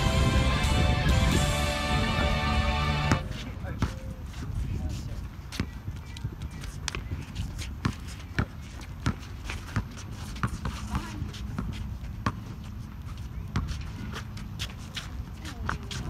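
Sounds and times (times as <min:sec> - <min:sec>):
sneakers shuffling on court: 0:03.0 - 0:16.0
basketball bouncing: 0:07.8 - 0:12.5.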